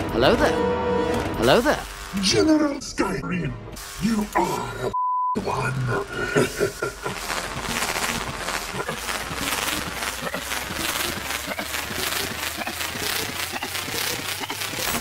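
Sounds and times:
crackling ticks: 5.5 - 15.0.

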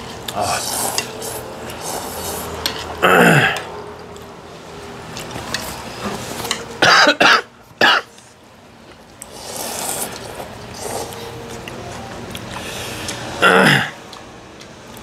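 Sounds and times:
person coughing hard: 3.0 - 3.6, 6.8 - 8.1, 13.4 - 14.0.

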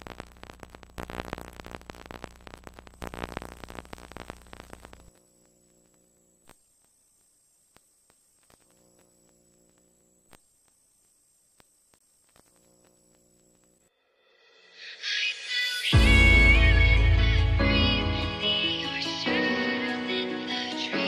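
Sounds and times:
static crackle: 0.0 - 14.0.

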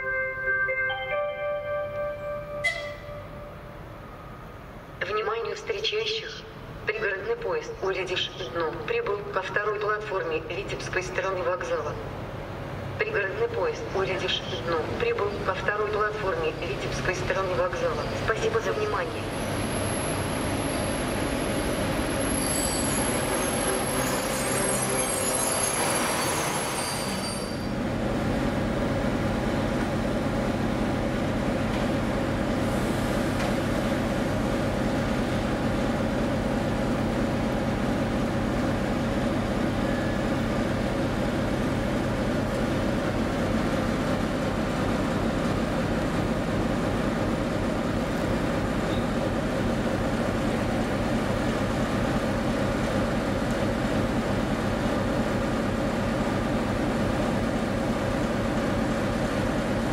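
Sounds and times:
train brakes and wheels squealing: 2.6 - 3.3, 19.4 - 27.8.

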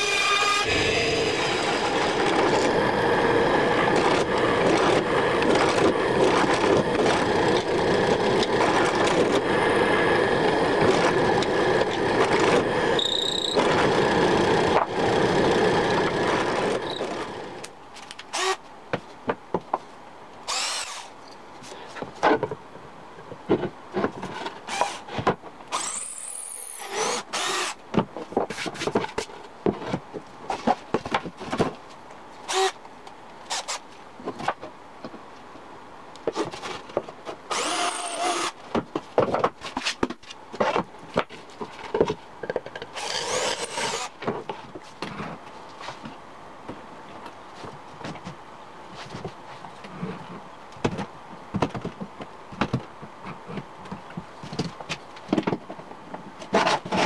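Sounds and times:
drill press boring into wood: 0.0 - 2.8, 10.8 - 17.6, 18.3 - 18.6, 20.5 - 21.1, 25.7 - 27.8, 32.5 - 32.8, 37.5 - 38.6, 43.0 - 44.1
cordless drill spinning: 0.0 - 17.6, 18.3 - 18.6, 20.5 - 21.1, 25.7 - 27.8, 32.5 - 32.8, 37.5 - 38.6, 43.0 - 44.1.

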